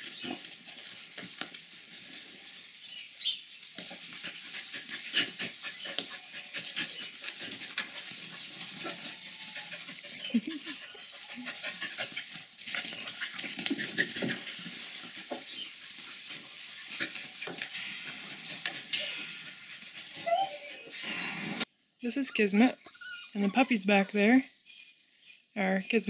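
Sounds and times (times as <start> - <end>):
scuffling in straw: 0.0 - 21.5
puppy vocal sounds: 4.0 - 15.3, 18.9 - 21.7.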